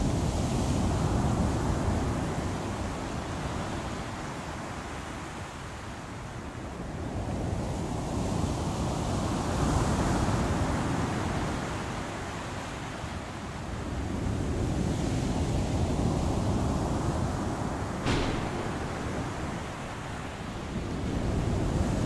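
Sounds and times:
stormy sea waves surging: 0.0s - 22.0s
wind: 0.0s - 22.0s
sharp crack: 18.0s - 21.0s.

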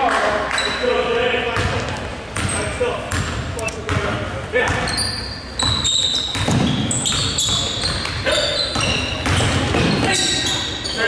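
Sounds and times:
sneakers squeaking on floor: 0.5s - 11.0s
basketball bouncing: 1.5s - 4.9s, 5.6s - 10.5s.

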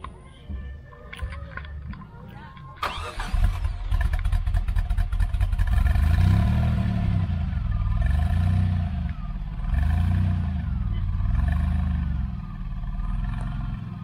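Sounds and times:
car engine idling and revving: 2.8s - 14.0s.

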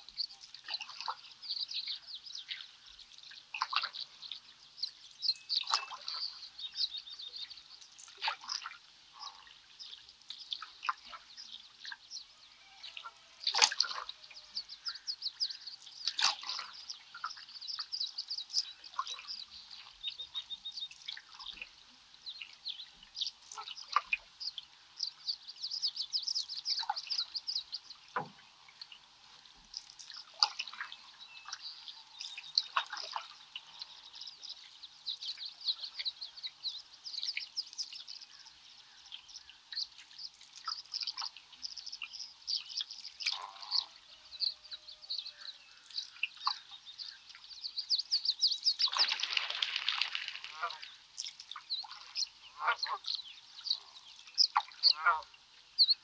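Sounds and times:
songbirds chirping: 0.0s - 56.0s
paddle splashing water: 2.4s - 4.4s, 5.4s - 12.0s, 13.0s - 21.8s, 28.0s - 36.0s, 48.6s - 53.0s.

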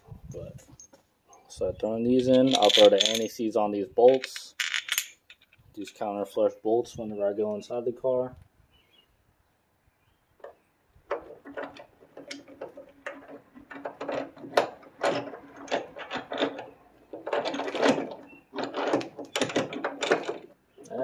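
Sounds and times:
metal-on-metal clicks and scrapes: 2.2s - 3.3s, 4.0s - 6.0s, 10.4s - 21.0s.

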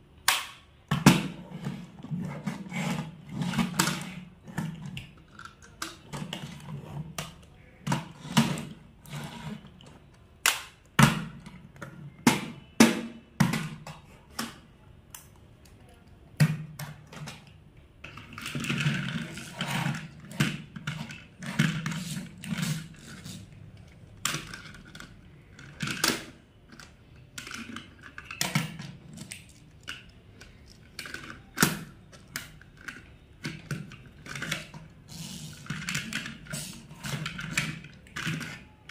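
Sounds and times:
toy truck scraping along table: 1.4s - 4.2s, 8.2s - 9.7s, 19.2s - 20.2s.

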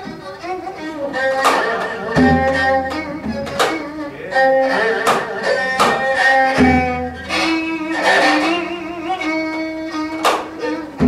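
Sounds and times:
sustained string tones: 0.0s - 11.0s
zithers plucking melody: 0.0s - 11.0s.

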